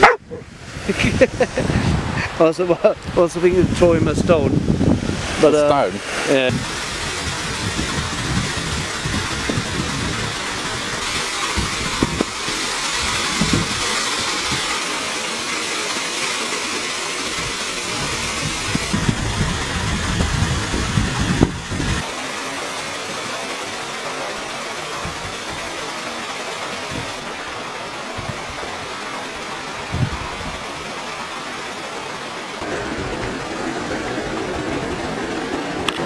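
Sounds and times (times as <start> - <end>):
wind buffeting microphone: 0.0 - 2.4, 3.0 - 12.4, 13.0 - 14.6, 17.4 - 22.1, 29.7 - 30.8
waterfall rushing: 0.0 - 36.0.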